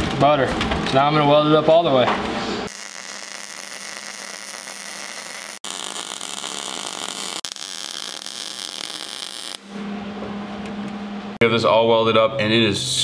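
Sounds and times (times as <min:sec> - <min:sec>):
welder arc crackling hiss: 0:02.7 - 0:09.7.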